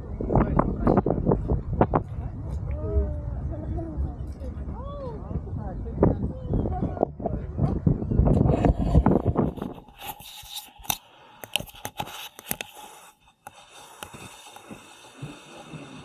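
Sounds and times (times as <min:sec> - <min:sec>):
loud low rumble: 0:00.0 - 0:09.5
camera scraping against fence: 0:08.4 - 0:15.0.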